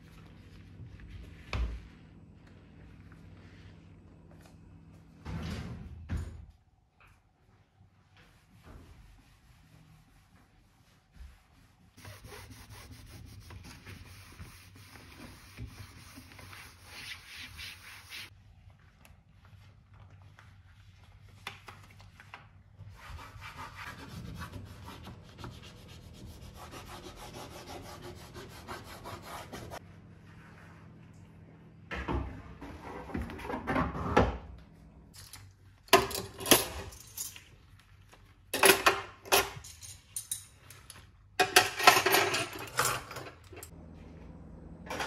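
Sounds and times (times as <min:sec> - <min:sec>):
toothbrush scrubbing a surface: 0:08.2 - 0:18.3, 0:22.9 - 0:29.8.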